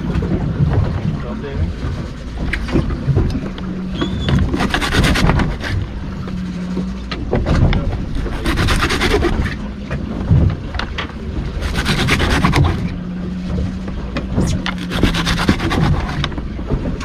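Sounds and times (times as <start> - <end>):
low steady hum: 0.0 - 17.0
serrated knife sawing through fish: 4.4 - 6.2, 8.1 - 9.6, 11.6 - 13.0, 14.4 - 16.4.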